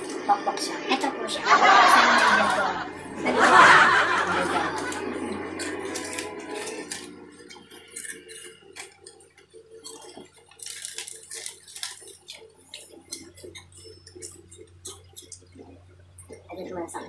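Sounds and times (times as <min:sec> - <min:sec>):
low steady hum: 0:00.0 - 0:17.0
plastic packets crinkling and tearing: 0:04.8 - 0:15.7.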